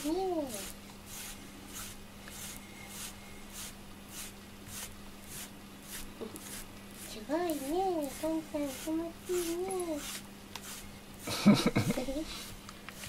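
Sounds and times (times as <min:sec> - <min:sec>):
brush rasping through cat fur: 0:00.0 - 0:13.0.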